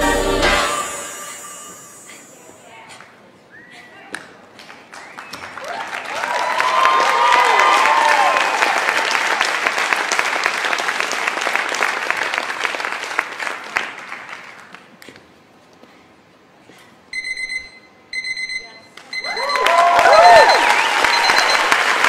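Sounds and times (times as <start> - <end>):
audience applauding: 4.6 - 14.9, 19.3 - 22.0
audience cheering: 4.9 - 11.2, 19.2 - 22.0
electronic beeping: 20.2 - 21.7.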